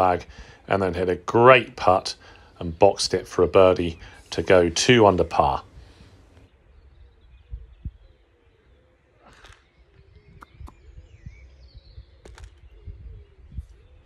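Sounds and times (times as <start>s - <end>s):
faint bird chirps: 6.5s - 14.0s
wind buffeting microphone: 6.6s - 8.2s, 9.7s - 14.0s.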